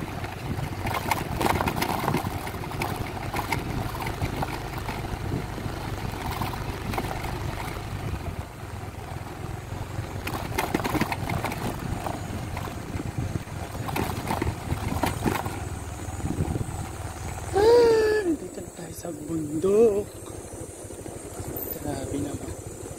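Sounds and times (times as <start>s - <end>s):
knocks and rattles from bumps: 0.0s - 7.9s, 10.2s - 16.8s
scooter engine running: 0.0s - 22.9s.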